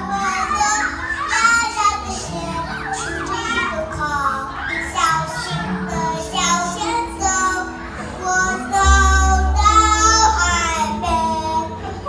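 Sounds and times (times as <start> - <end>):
boy singing into microphone: 0.0 - 12.0
pop backing music: 5.3 - 12.0
deep steady bass: 8.8 - 12.0.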